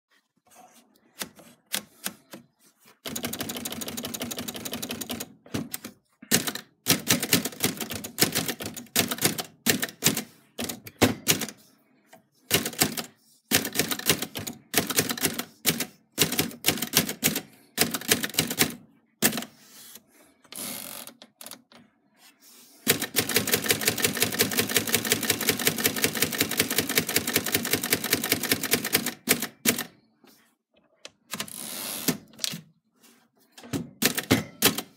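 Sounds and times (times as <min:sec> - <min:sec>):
typewriter typing: 0:03.0 - 0:11.6, 0:12.5 - 0:19.6, 0:22.8 - 0:29.9, 0:31.3 - 0:32.6, 0:33.9 - 0:34.9.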